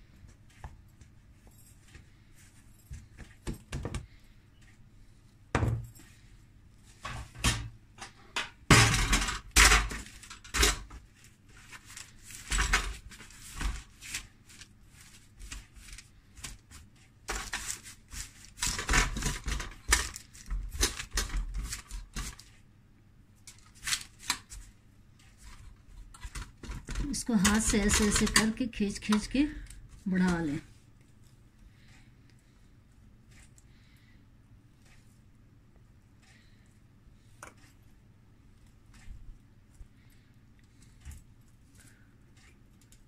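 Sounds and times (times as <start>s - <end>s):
dough handled in metal tray: 23.5s - 32.0s.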